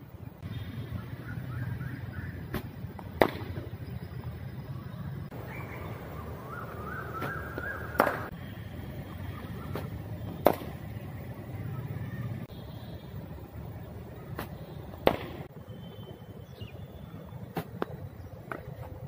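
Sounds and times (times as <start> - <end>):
cricket ball cracking on bat: 2.5 - 3.7, 7.2 - 8.4, 9.7 - 10.8, 14.3 - 15.5.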